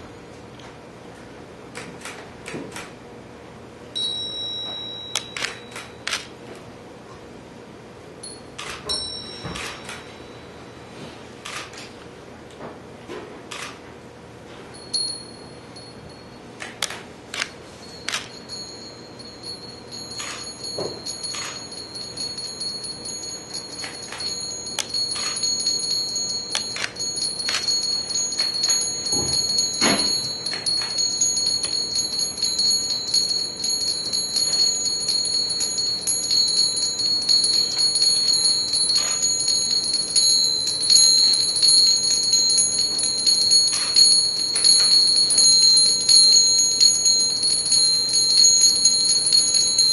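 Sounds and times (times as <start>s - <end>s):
high metallic chiming tones: 17.7s - 49.9s.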